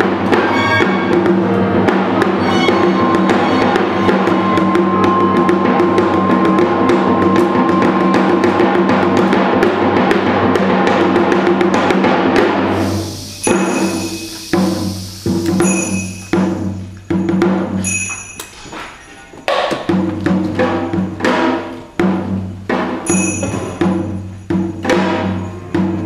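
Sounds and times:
string ensemble: 0:00.0 - 0:17.2
hourglass drum strokes: 0:00.0 - 0:19.0, 0:19.8 - 0:26.0.

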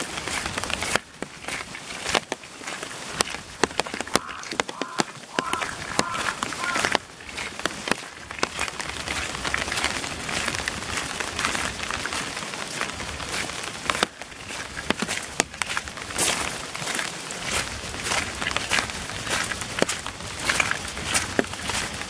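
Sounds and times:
footsteps: 0:00.0 - 0:22.0
heavy rain falling: 0:00.0 - 0:22.0.

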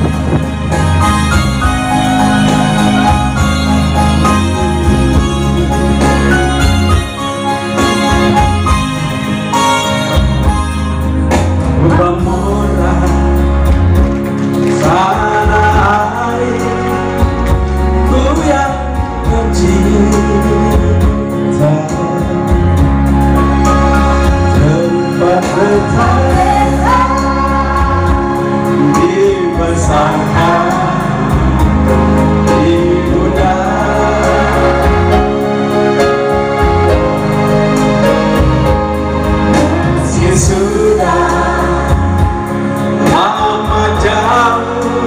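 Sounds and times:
electronic keyboard with bass line: 0:00.0 - 0:45.0
man singing: 0:11.6 - 0:14.0, 0:14.7 - 0:23.0, 0:24.2 - 0:35.6, 0:39.5 - 0:45.0
woman singing: 0:26.0 - 0:28.5.

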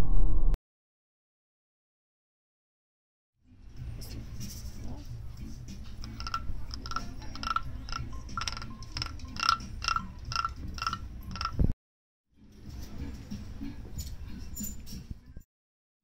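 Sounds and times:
wooden guiro scraped with stick: 0:05.7 - 0:11.7.

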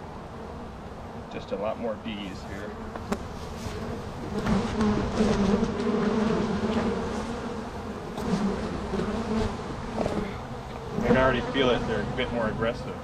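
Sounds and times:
honeybees buzzing: 0:00.0 - 0:13.0.

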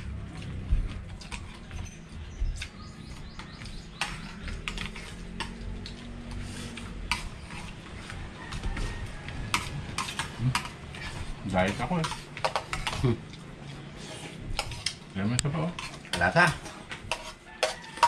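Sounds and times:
cutlery clicking on plates: 0:09.5 - 0:10.8, 0:11.7 - 0:13.4, 0:15.8 - 0:18.0.

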